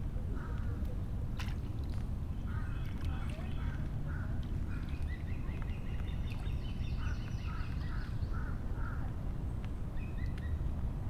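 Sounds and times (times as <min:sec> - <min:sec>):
low outdoor rumble: 0:00.0 - 0:11.0
small birds twittering: 0:02.3 - 0:10.7.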